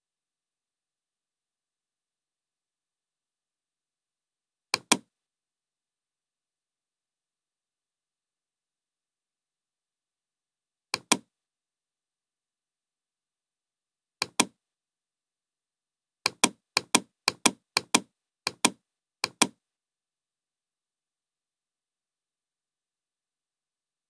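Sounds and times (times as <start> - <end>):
computer mouse clicks: 4.8 - 5.1, 11.0 - 11.3, 14.2 - 14.6, 16.3 - 19.6.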